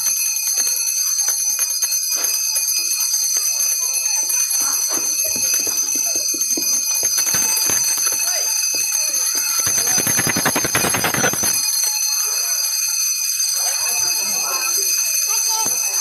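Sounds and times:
hand bell ringing: 0:00.0 - 0:16.0
voices: 0:03.5 - 0:16.0
rapid rattling strokes: 0:07.2 - 0:12.7.

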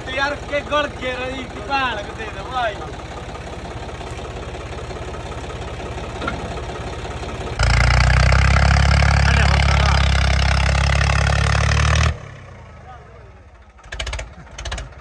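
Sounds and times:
tractor diesel engine idling: 0:00.0 - 0:15.0
engine running at high revs: 0:07.6 - 0:12.8.

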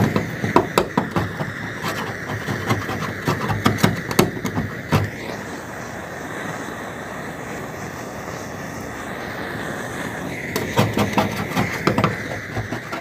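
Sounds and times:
scraper scraping steel panel: 0:00.0 - 0:05.1, 0:10.6 - 0:13.0
gas burner torch rushing: 0:00.0 - 0:13.0.

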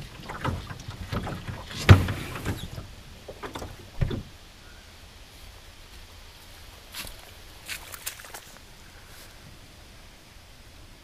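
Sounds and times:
boat hull knocks and scrapes: 0:00.0 - 0:04.3.

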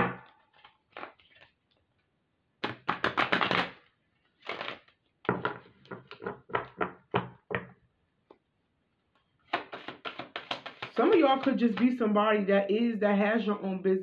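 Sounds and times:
cards being shuffled: 0:00.5 - 0:01.8, 0:02.6 - 0:06.2, 0:09.4 - 0:11.9
sharp card slaps: 0:09.5 - 0:11.8.

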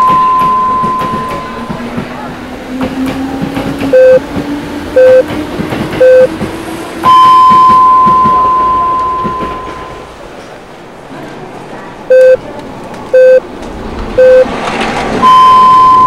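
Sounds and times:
electronic time signal beeps: 0:00.0 - 0:01.6, 0:04.0 - 0:04.2, 0:05.0 - 0:05.2, 0:06.0 - 0:06.3, 0:07.0 - 0:10.1, 0:12.1 - 0:12.4, 0:13.2 - 0:13.4, 0:14.2 - 0:14.5, 0:15.2 - 0:16.0.

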